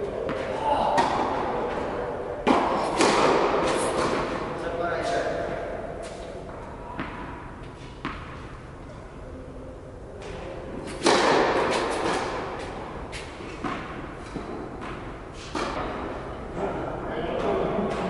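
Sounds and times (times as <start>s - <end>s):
tennis ball bouncing on court: 0.2s - 1.8s, 5.5s - 8.5s, 10.2s - 16.0s
racket striking ball: 0.2s - 4.5s, 5.5s - 8.6s, 10.2s - 16.2s.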